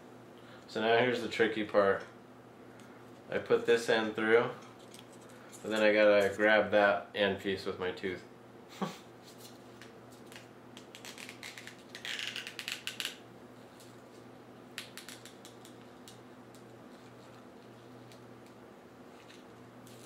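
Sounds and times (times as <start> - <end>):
low steady hum: 0.0 - 20.0
soft rustling and crinkling: 15.8 - 20.0.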